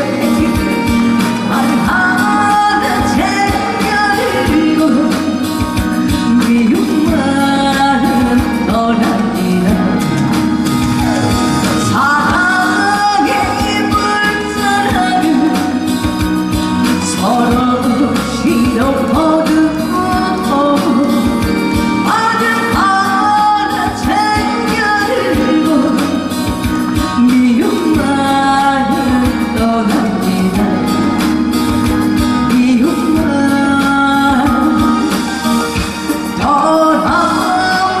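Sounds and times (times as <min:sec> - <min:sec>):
loud amplified backing music: 0:00.0 - 0:38.0
person singing live: 0:00.0 - 0:38.0.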